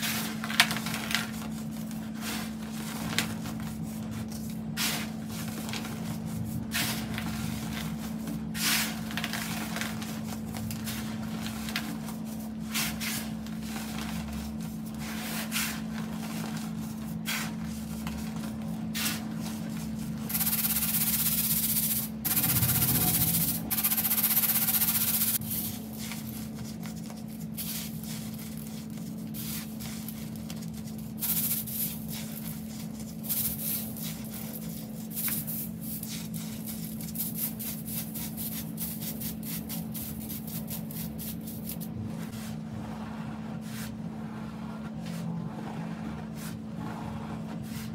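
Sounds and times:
powder shaken through mesh sieve: 0:00.0 - 0:42.5
low hum: 0:20.2 - 0:25.6.

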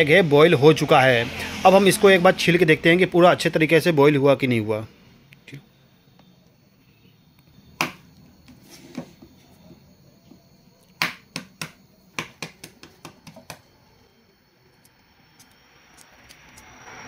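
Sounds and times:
egg tapping on tabletop: 0:11.0 - 0:13.6.

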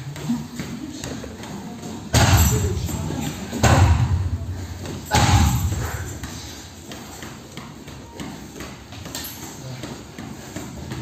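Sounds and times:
heavy thuds on punching bag: 0:02.1 - 0:03.0, 0:03.6 - 0:06.4.

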